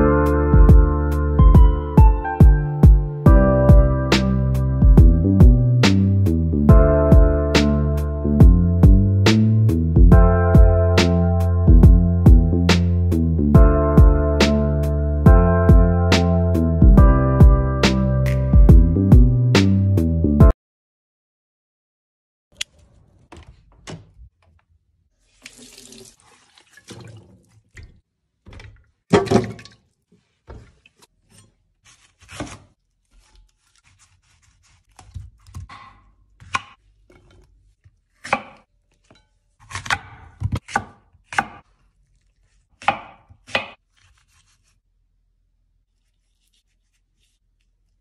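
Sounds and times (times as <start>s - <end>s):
knife cutting fruit on wooden board: 30.4s - 44.8s, 45.9s - 47.9s.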